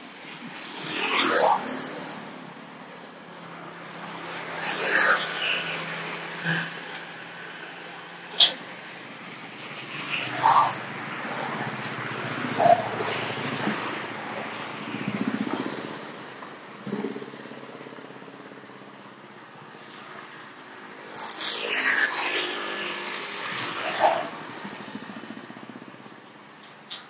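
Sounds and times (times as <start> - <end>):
motorcycle passing: 0.3 - 27.0
small truck passing: 0.8 - 26.9.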